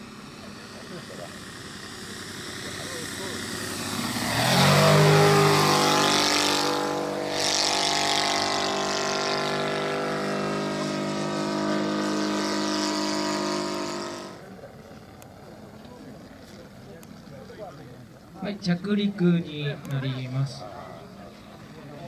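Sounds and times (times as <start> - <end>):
model plane engine droning: 0.0 - 22.0.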